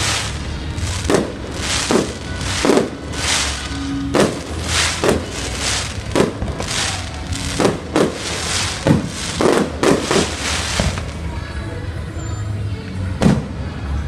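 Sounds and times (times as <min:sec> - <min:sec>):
firework shells bursting: 0:00.0 - 0:11.2.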